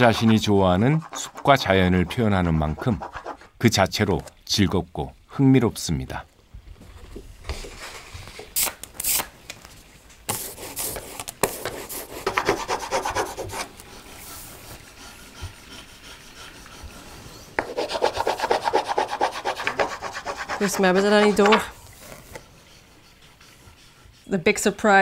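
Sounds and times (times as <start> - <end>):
hand rubbing paper: 10.3 - 24.3.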